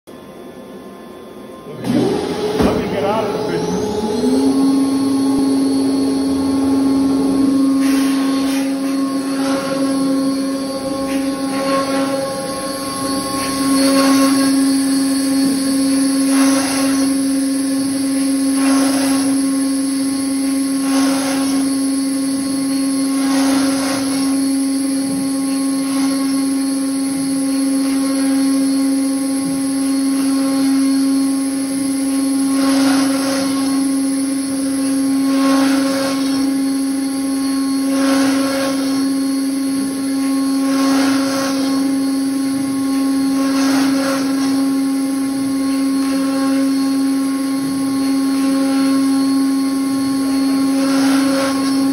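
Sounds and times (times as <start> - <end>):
cnc router spindle humming: 0.1 - 51.9
bursts of cutting noise: 1.7 - 22.0.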